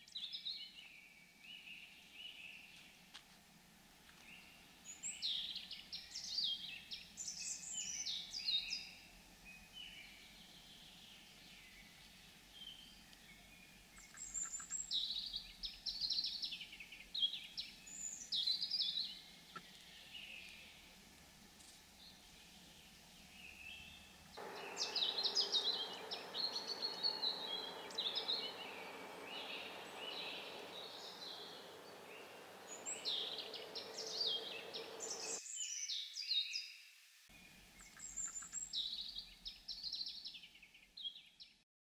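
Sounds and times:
small birds chirping: 0.0s - 3.0s, 4.0s - 41.6s
steady rushing noise: 24.4s - 35.4s.

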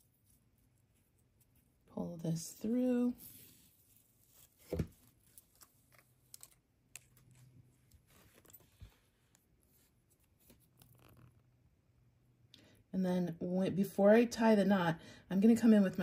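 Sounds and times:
cord handling noises: 4.4s - 11.4s.

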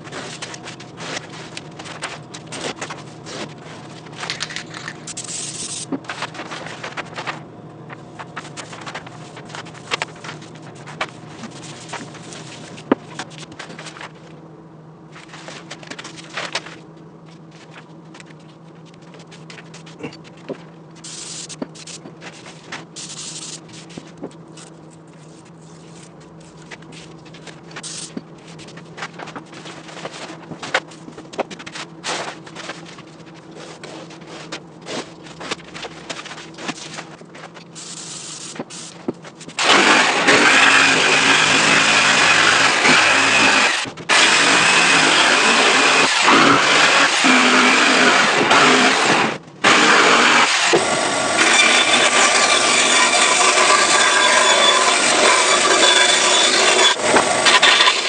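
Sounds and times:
paper rustling: 0.0s - 14.4s, 15.1s - 39.8s
low shop hum: 0.0s - 58.0s
power tool cutting plywood: 39.6s - 58.0s.

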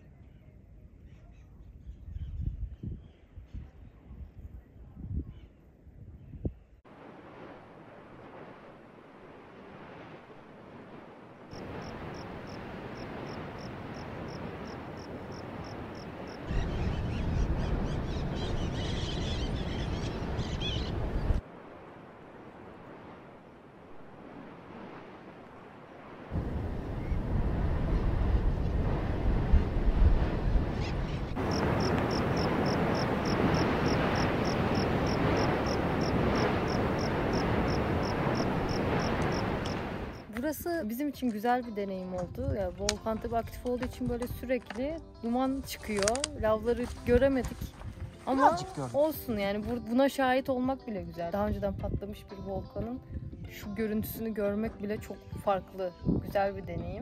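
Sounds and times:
wind buffeting microphone: 1.8s - 6.8s, 9.4s - 40.3s, 45.6s - 49.8s, 51.4s - 57.0s
volcano crater rushing: 6.9s - 40.2s
insect chirping: 11.5s - 17.1s, 30.8s - 40.3s
volcano crater roaring: 26.3s - 40.2s.

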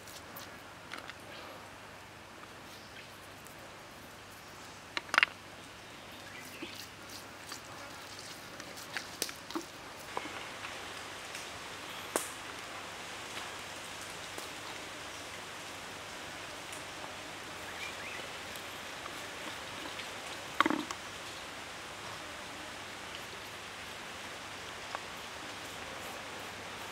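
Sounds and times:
steady background hiss: 0.0s - 26.9s.

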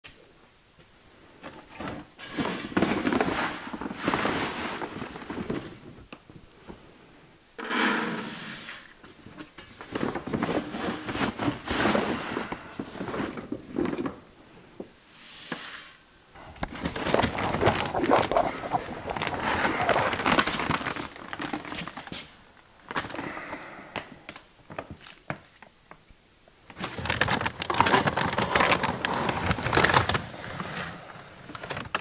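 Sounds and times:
paper sack rustling: 16.6s - 22.3s, 26.8s - 32.0s.

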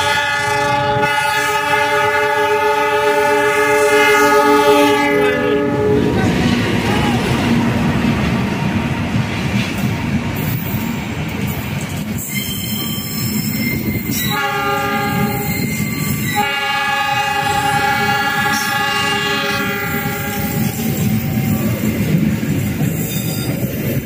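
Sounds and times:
train horn chord: 0.0s - 6.9s, 14.3s - 15.4s, 16.4s - 20.8s
train coaches rumbling and clattering: 0.0s - 24.0s.

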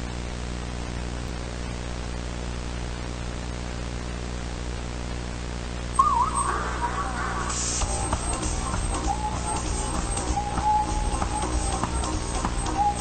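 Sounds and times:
static hiss: 0.0s - 13.0s
low hum: 5.9s - 13.0s
music: 6.0s - 13.0s
wavering tone: 6.0s - 13.0s.

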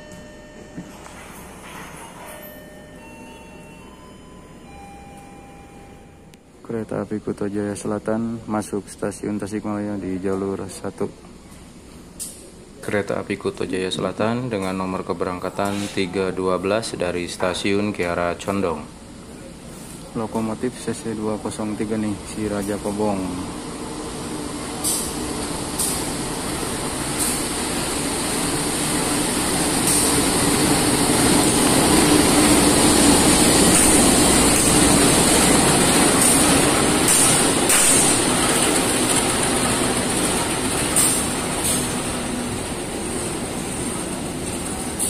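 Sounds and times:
locomotive engine hum: 21.0s - 45.0s
train wheel clicks: 29.2s - 42.2s.

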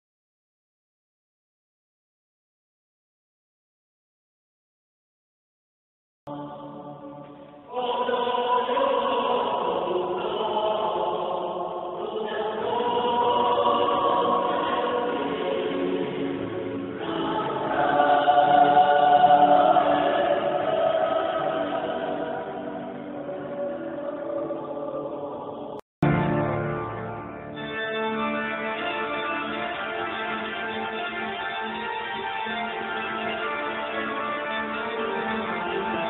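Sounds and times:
mixed choir singing: 6.3s - 25.8s.

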